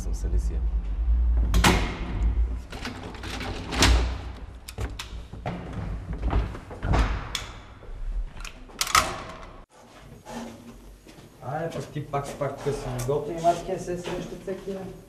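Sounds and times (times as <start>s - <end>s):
low rumble: 0.0s - 2.8s.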